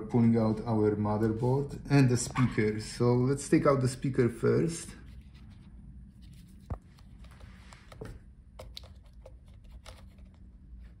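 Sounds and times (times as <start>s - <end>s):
fingertips clicking and scratching: 8.0s - 11.0s.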